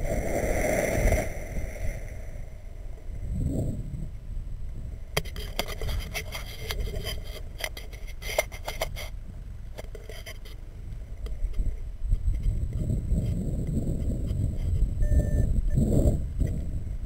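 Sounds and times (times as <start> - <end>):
low wind rumble: 0.0 - 17.0
gear clicking against camera: 5.2 - 10.6.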